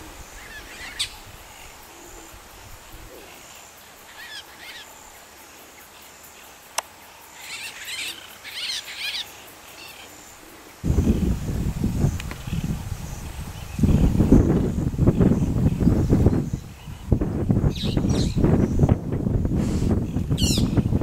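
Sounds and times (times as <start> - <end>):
high insect trilling: 0.2 - 18.9
birds chirping: 12.0 - 19.1, 19.7 - 21.0.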